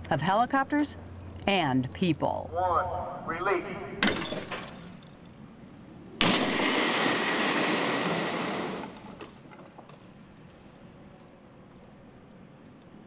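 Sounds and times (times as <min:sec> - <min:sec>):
helicopter fuselage crashing on concrete: 0:06.2 - 0:09.9.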